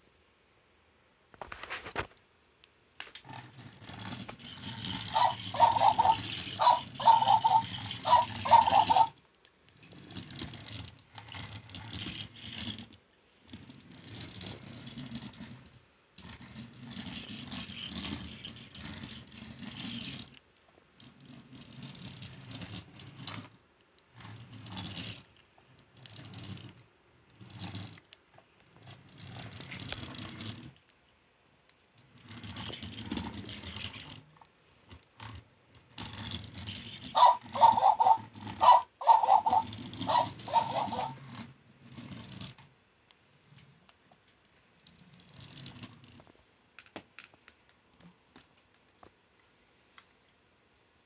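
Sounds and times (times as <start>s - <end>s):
toy motor and gears whirring: 3.2s - 30.8s, 32.0s - 42.7s, 44.8s - 46.3s.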